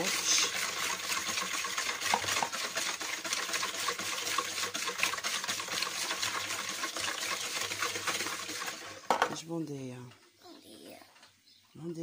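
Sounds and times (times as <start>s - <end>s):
liquid sloshing: 0.0s - 9.2s
whisk wires clicking on bowl: 0.0s - 9.4s.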